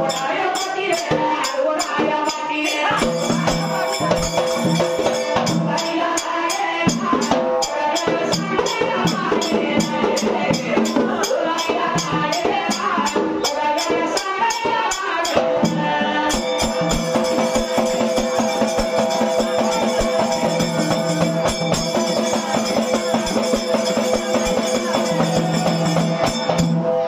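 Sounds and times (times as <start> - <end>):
men singing in chorus: 0.0 - 16.9
jingling percussion: 0.0 - 27.0
large drum beat: 2.9 - 5.9, 15.7 - 27.0.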